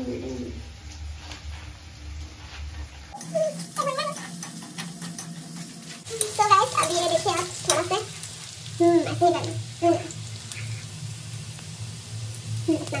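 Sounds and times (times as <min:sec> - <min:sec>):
vegetables sizzling in oil: 0:03.1 - 0:13.0.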